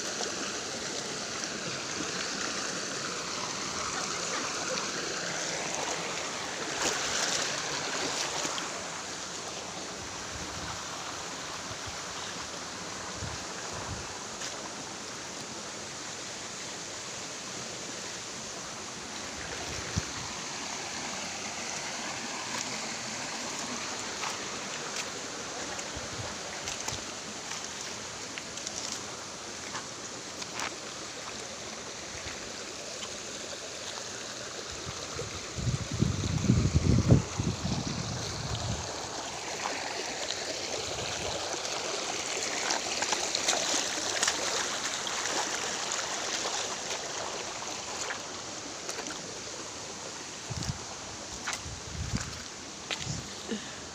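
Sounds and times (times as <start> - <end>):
creek running over rocks: 0.0 - 53.9.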